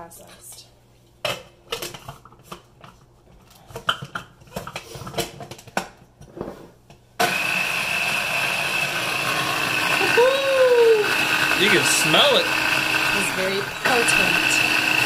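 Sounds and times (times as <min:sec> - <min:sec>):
food chopper motor whining: 0:07.2 - 0:15.0.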